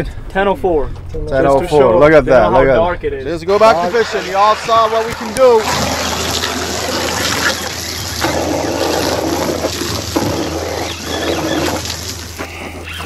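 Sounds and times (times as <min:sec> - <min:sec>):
water sloshing and trickling: 0:03.6 - 0:13.0.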